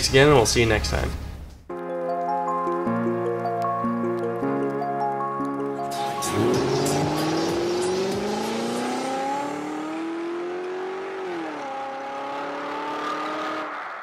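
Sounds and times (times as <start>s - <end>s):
car engine accelerating: 5.4s - 14.0s.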